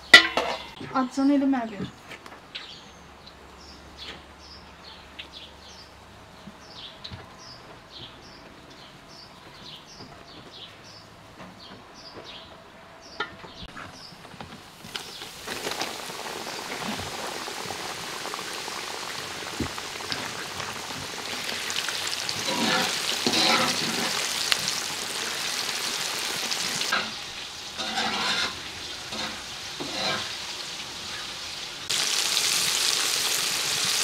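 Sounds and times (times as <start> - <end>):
meat sizzling in hot oil: 14.8 - 34.0
small birds chirping: 14.9 - 20.1.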